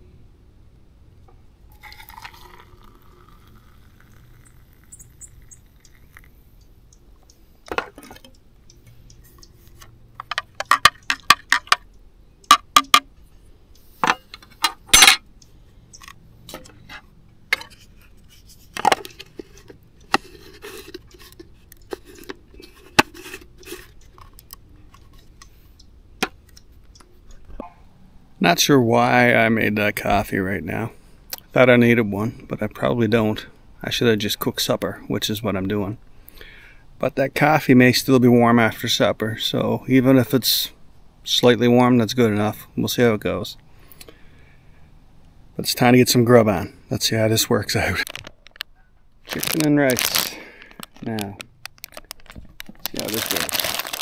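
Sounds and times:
coffee pouring into mug: 1.7s - 6.4s.

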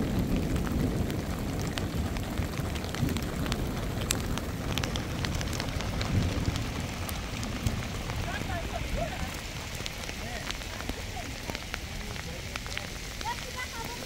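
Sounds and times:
drops ticking: 0.0s - 14.0s
rain falling: 0.0s - 14.0s
wind rumble on microphone: 0.0s - 14.0s.

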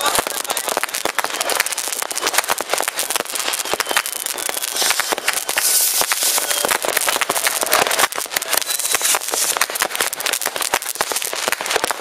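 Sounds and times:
fireworks bangs and cracks: 0.0s - 12.0s
rushing hiss of rockets: 4.4s - 12.0s.

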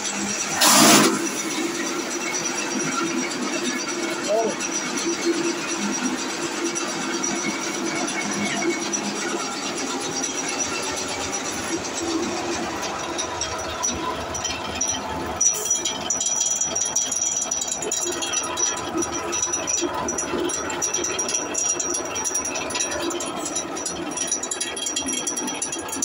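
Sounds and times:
high steady whine: 0.0s - 16.7s.

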